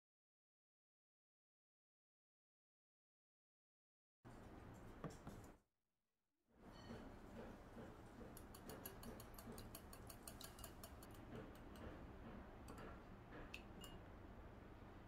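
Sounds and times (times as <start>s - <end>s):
whisk clicking against glass bowl: 7.9s - 12.0s.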